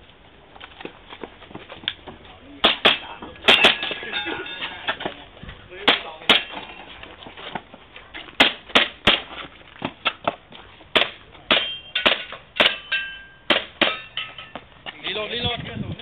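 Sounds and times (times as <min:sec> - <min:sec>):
metal plate targets ringing: 0:02.6 - 0:05.0, 0:05.8 - 0:06.8, 0:11.5 - 0:14.6.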